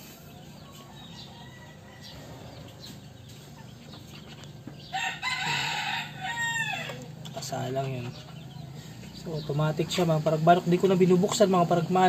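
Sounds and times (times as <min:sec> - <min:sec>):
rooster crowing: 0:00.7 - 0:02.8, 0:04.9 - 0:07.2.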